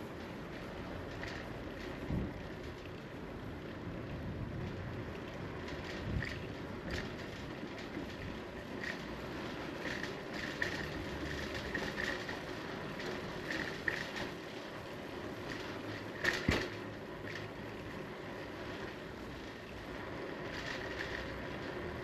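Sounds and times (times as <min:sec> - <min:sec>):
bicycle ticks and rattles: 0:00.0 - 0:22.0
bicycle tyres rumbling on asphalt: 0:00.0 - 0:22.0.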